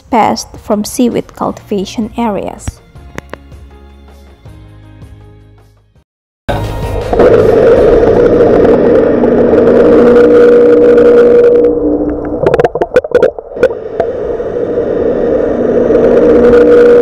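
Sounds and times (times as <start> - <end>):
electronic droning hum: 6.5 - 17.0.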